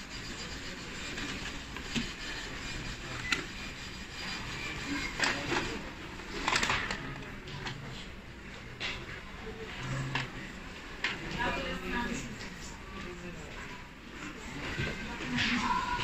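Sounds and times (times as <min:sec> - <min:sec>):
printer mechanism humming: 0:00.0 - 0:07.9.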